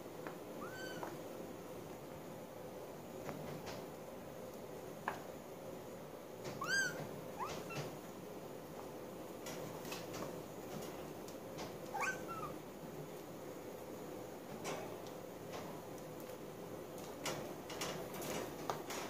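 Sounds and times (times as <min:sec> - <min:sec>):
kitten meowing: 0:00.6 - 0:01.1, 0:06.6 - 0:07.9, 0:12.0 - 0:12.6.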